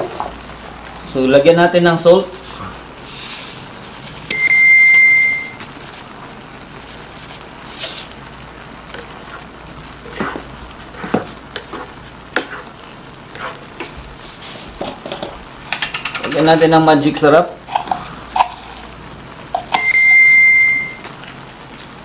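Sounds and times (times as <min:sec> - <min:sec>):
high-pitched beep: 0:04.3 - 0:05.6, 0:19.7 - 0:21.1
sauce simmering: 0:05.6 - 0:16.1, 0:17.2 - 0:19.7.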